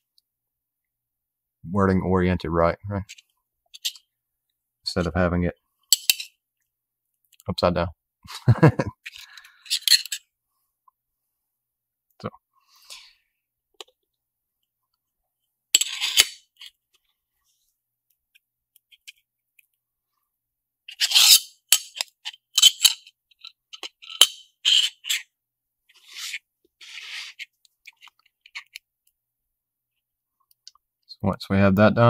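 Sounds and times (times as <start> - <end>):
metal enclosure clicks and scrapes: 20.9 - 25.2.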